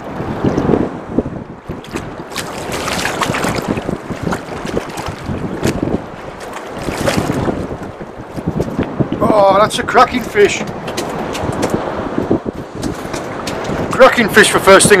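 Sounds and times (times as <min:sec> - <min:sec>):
water slapping boat hull: 0:00.0 - 0:15.0
wind buffeting microphone: 0:00.0 - 0:15.0
fish knocking and splashing: 0:01.7 - 0:09.0, 0:10.7 - 0:11.9, 0:12.6 - 0:13.9.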